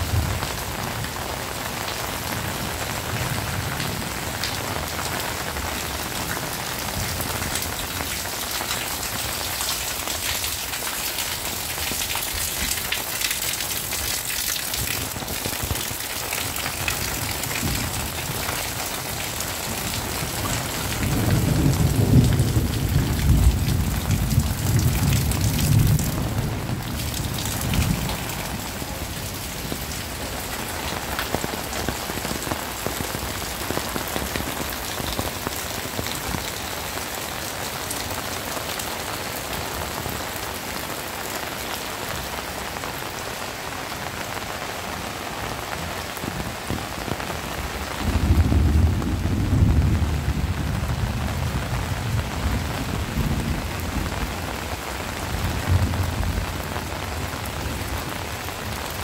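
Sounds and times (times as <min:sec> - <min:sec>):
heavy rain hissing: 0:00.0 - 0:59.0
low roll of thunder: 0:19.7 - 0:29.9, 0:48.0 - 0:54.3.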